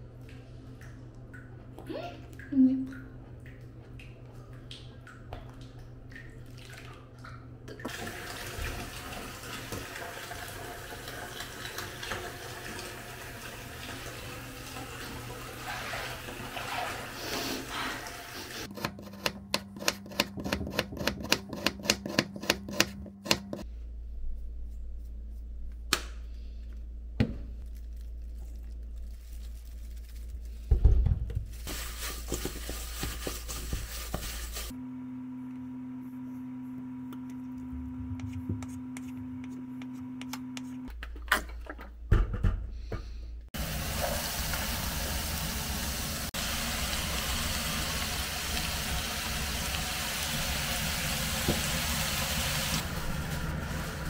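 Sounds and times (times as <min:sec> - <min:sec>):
water running: 0:00.1 - 0:18.7, 0:43.6 - 0:54.0
steady low hum: 0:34.8 - 0:40.9.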